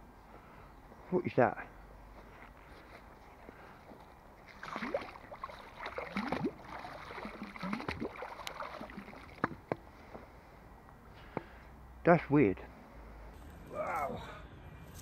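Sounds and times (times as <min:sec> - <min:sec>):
wet gurgling and squelching hose: 0:04.4 - 0:09.8.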